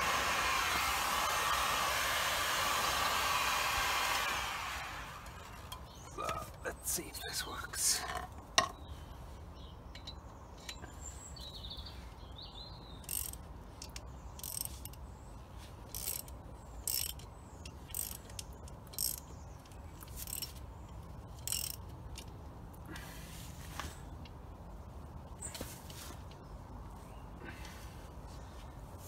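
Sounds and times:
ratchet wrench clicking: 13.0s - 15.0s, 15.9s - 19.3s, 20.0s - 20.6s, 21.3s - 22.3s.

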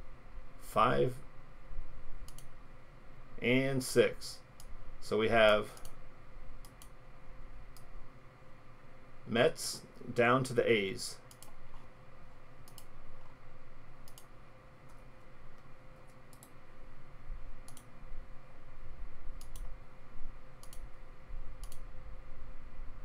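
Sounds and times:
faint steady hum: 0.0s - 23.0s
computer mouse clicking: 2.2s - 2.5s, 6.6s - 7.0s, 11.3s - 11.8s, 12.6s - 12.9s, 14.0s - 14.3s, 14.9s - 16.6s, 17.6s - 17.9s, 19.4s - 19.7s, 20.6s - 20.9s, 21.6s - 21.9s.

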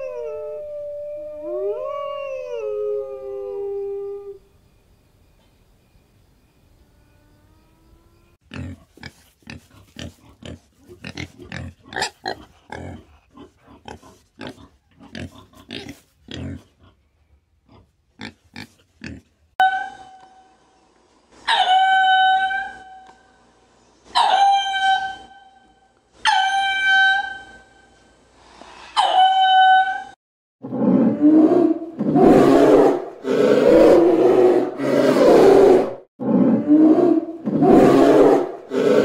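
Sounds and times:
polar bear growling: 30.7s - 39.0s.

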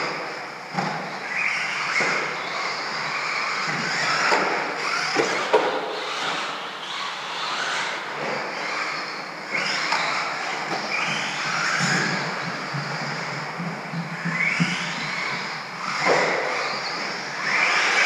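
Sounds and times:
rc truck motors whining: 0.0s - 18.0s.

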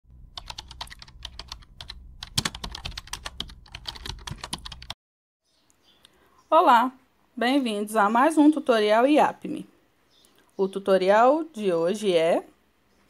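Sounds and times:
typing on computer keyboard: 0.4s - 5.0s.

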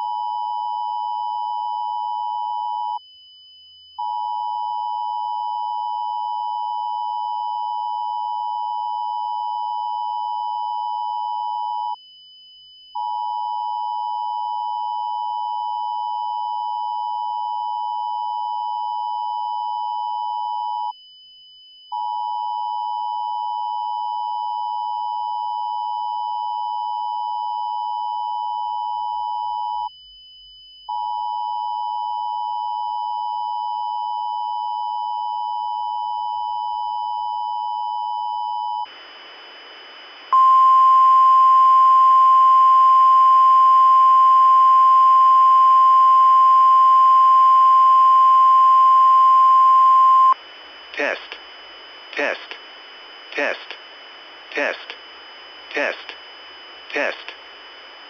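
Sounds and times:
radio static hiss: 38.9s - 40.4s, 50.4s - 58.0s.

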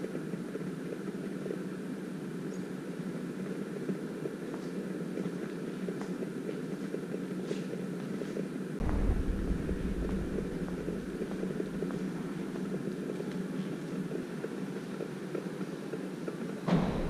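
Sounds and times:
low ambient hum: 8.7s - 17.0s
wind buffeting microphone: 8.8s - 13.0s.

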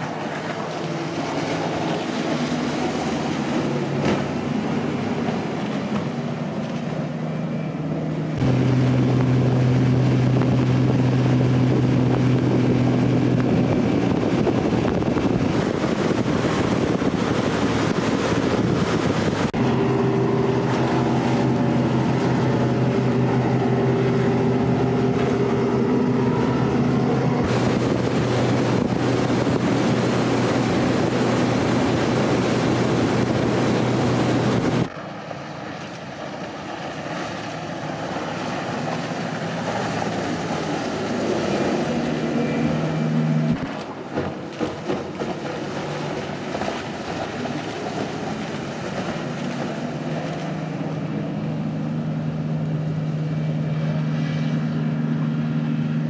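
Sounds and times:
speedboat engine drone: 0.0s - 56.0s
water rushing: 0.0s - 56.0s
wind on microphone: 8.4s - 34.9s.

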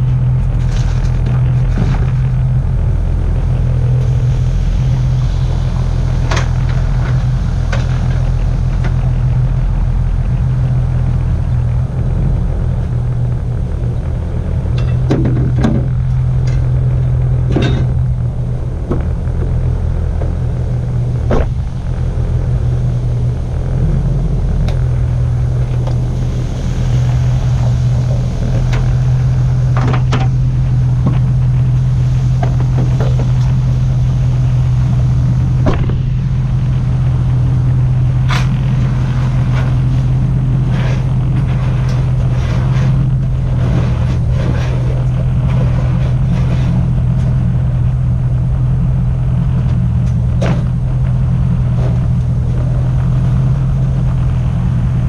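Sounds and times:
truck engine running: 0.0s - 55.0s.

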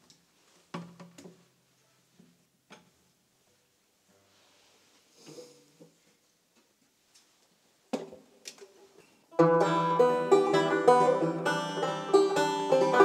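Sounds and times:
banjo picking: 9.3s - 13.0s
stray banjo strings ringing: 9.3s - 13.0s
knocks on banjo: 9.4s - 13.0s.

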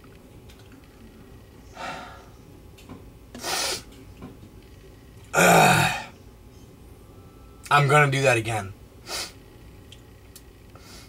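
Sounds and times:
man sniffing through nose: 3.4s - 3.9s, 9.0s - 9.4s.

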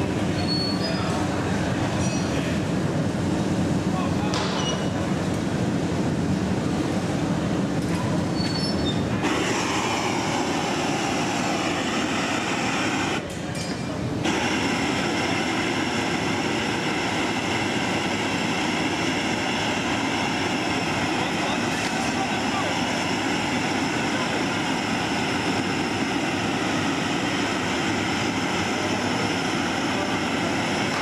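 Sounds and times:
roar of gas burners: 9.0s - 13.2s, 14.2s - 31.0s.

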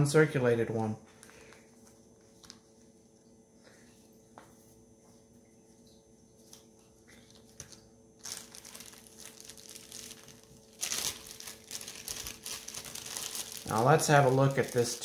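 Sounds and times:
packing material crinkling: 6.4s - 15.0s.

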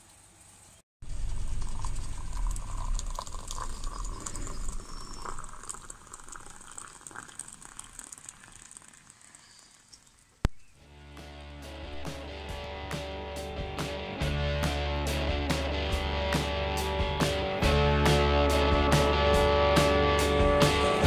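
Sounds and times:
water pouring into mugs: 1.1s - 10.3s.

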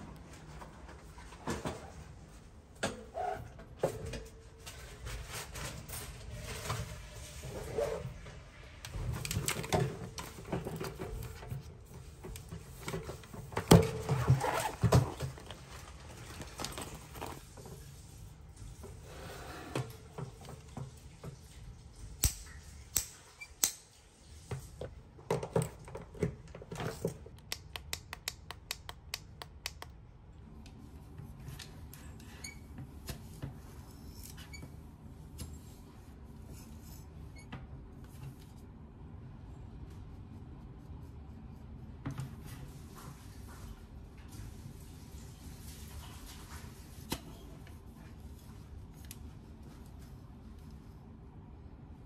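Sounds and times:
rustling of pouches and cord: 14.1s - 17.8s.

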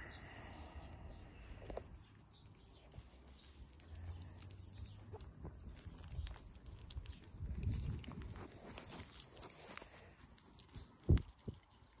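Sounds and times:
faint clicks and rustles: 1.6s - 12.0s.

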